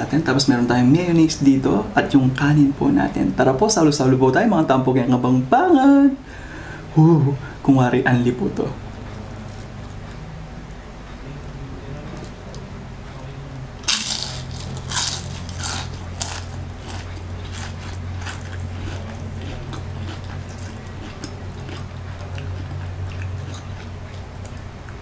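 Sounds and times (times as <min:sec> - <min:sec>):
steady low hum: 0:00.0 - 0:25.0
crunching and chewing food: 0:13.8 - 0:25.0.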